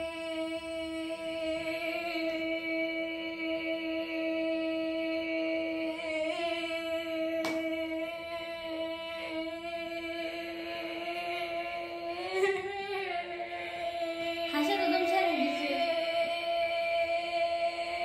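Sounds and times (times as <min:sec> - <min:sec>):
woman singing a held note: 0:13.6 - 0:17.9.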